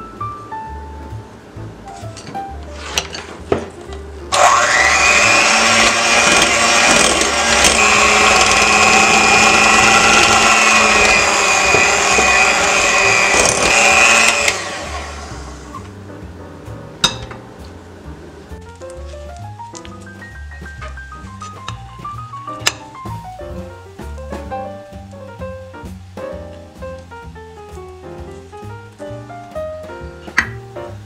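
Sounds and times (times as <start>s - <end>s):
electric hand mixer whine: 4.3s - 15.8s.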